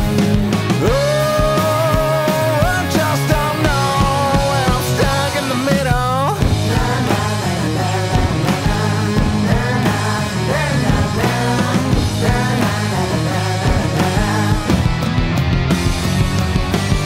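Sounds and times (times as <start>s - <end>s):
drum kit: 0.0s - 17.0s
electric bass: 0.0s - 17.0s
electric guitar: 0.0s - 17.0s.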